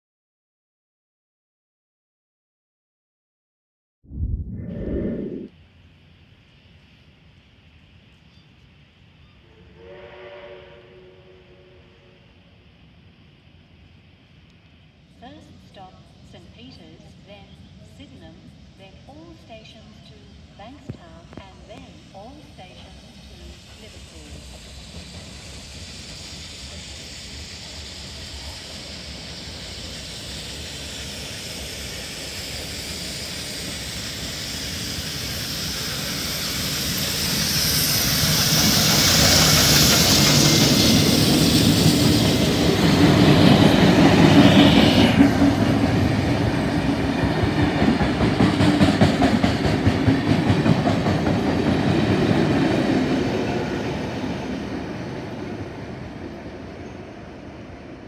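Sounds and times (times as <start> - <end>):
steam locomotive passing: 6.1 - 58.0
train wheels clattering over rail joints: 45.1 - 53.0.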